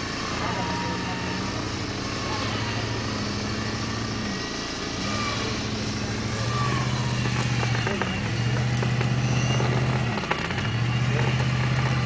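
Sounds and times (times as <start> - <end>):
winch motor drone: 0.0 - 12.0.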